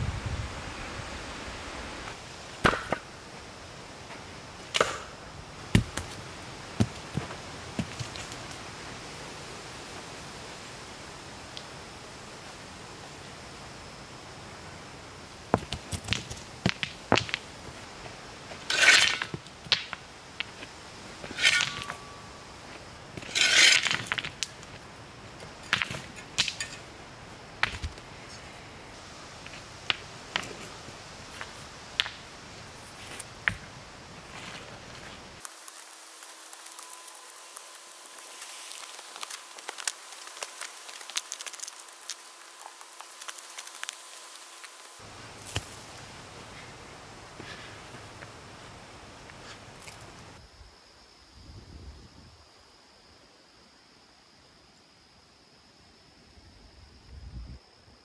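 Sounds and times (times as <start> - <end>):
faint steady hiss: 0.0 - 58.0
footsteps on dirt path with twigs: 5.7 - 8.6, 29.4 - 46.0.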